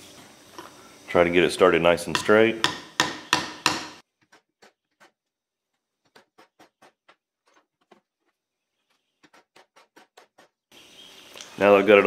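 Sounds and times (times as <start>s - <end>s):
hammer striking metal: 2.1s - 4.0s.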